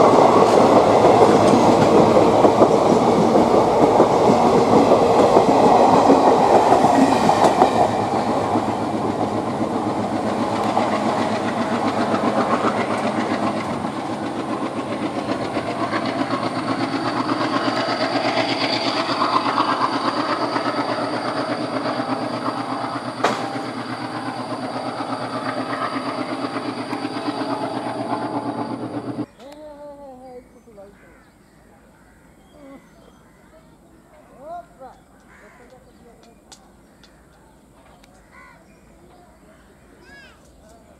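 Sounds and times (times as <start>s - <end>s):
train wheels clattering over rail joints: 0.0s - 29.3s.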